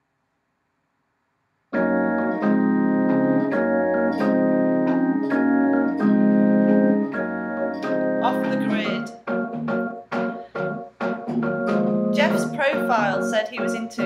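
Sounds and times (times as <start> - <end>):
electronic keyboard chords: 1.7 - 14.0.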